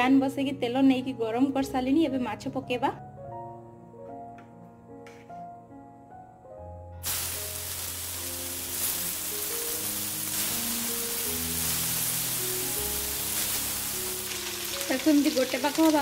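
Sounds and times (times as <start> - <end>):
fish sizzling in hot oil: 7.0 - 16.0.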